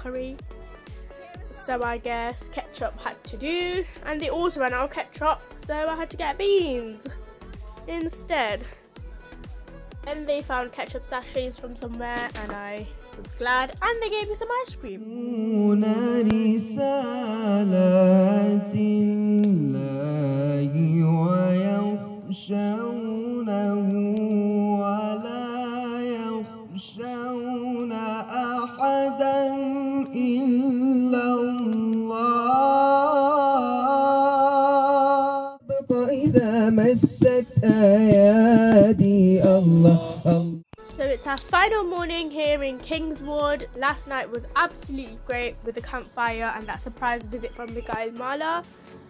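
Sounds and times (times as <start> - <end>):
person singing unaccompanied: 14.3 - 48.0.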